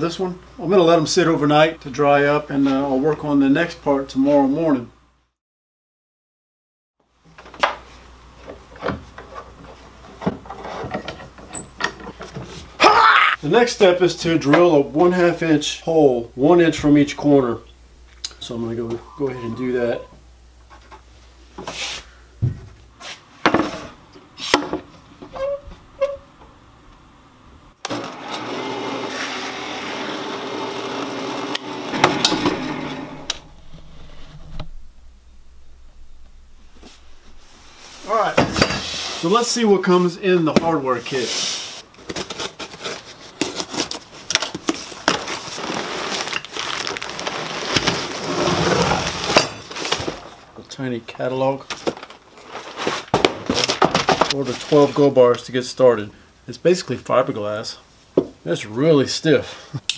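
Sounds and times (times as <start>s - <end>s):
drill press boring through wood: 27.8s - 34.2s
clamps rubbing: 30.8s - 38.9s.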